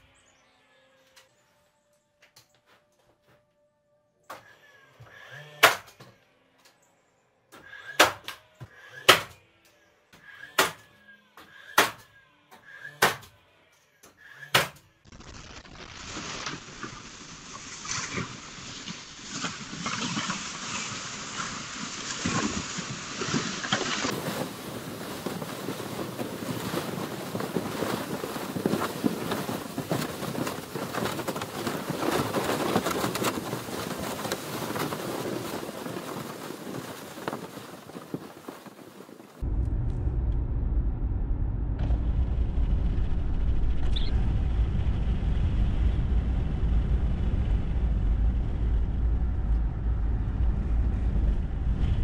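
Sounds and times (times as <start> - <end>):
nail gun firing: 5.6 - 6.0, 7.8 - 8.4, 9.0 - 9.4, 10.4 - 10.9, 11.7 - 12.1, 12.9 - 13.3, 14.4 - 14.8
sled scraping over snow: 16.0 - 39.4.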